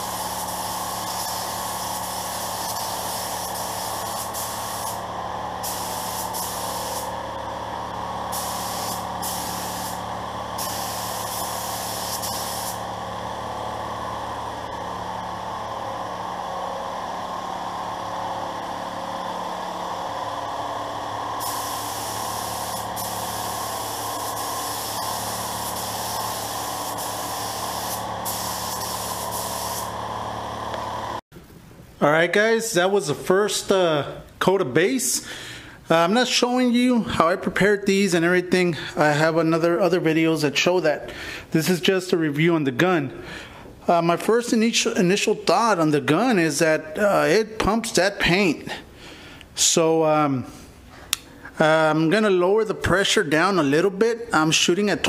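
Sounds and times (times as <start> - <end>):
spray gun hissing: 0.0 - 7.2, 8.2 - 13.0, 21.4 - 30.2
steady low hum: 0.0 - 32.1.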